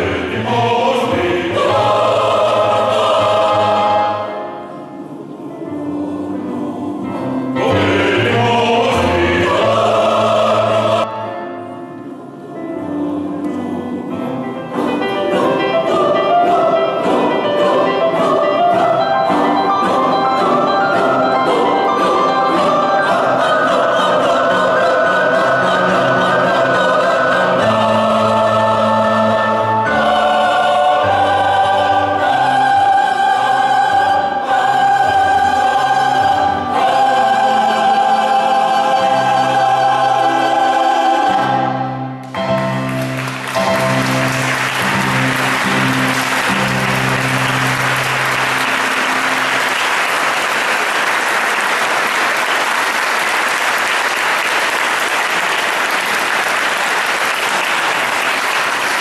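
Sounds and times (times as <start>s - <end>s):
choir singing sacred piece: 0.0s - 59.0s
audience applauding: 42.5s - 59.0s.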